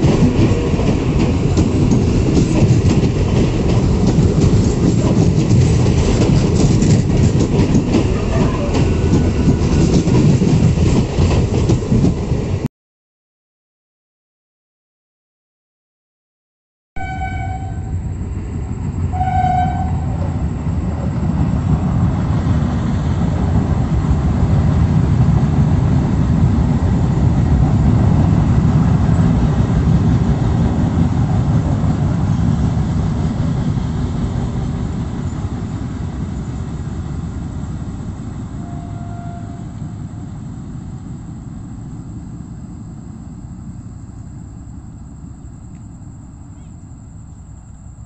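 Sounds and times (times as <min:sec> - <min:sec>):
train rumbling past: 0:00.0 - 0:12.7, 0:17.0 - 0:48.0
train horn: 0:08.1 - 0:09.8, 0:17.0 - 0:18.2, 0:19.1 - 0:20.4, 0:38.6 - 0:40.2.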